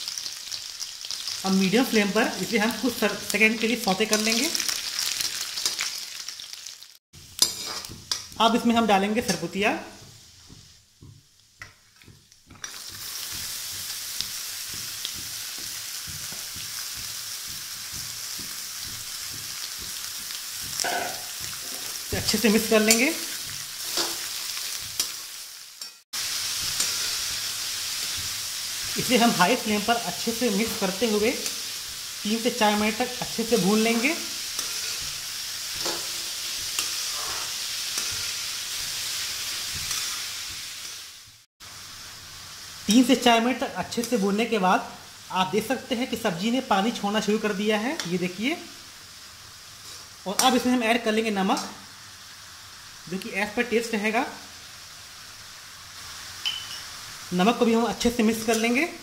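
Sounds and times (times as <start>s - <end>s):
vegetables sizzling in oil: 0.0s - 59.0s
metal ladle scraping pan: 7.4s - 8.0s, 34.5s - 38.4s.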